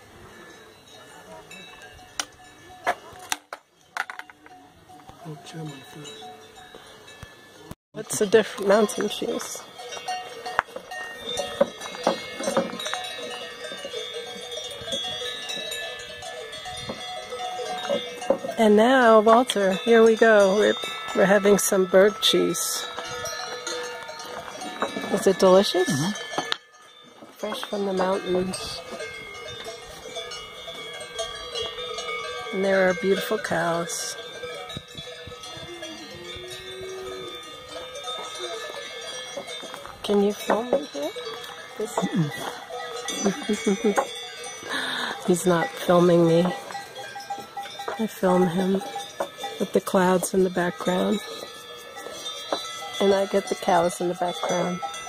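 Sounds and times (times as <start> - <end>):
cow bells jangling: 0.0 - 55.0
cowbells clanking: 0.0 - 55.0.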